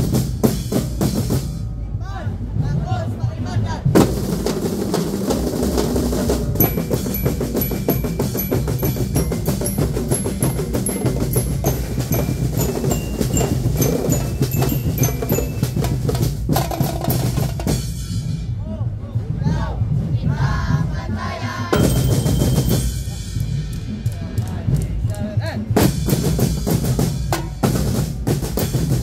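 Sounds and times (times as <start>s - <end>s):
snare and bass drum rhythms: 0.0s - 1.7s, 3.8s - 29.0s
bell-lyre melody: 6.6s - 17.5s, 21.8s - 23.6s.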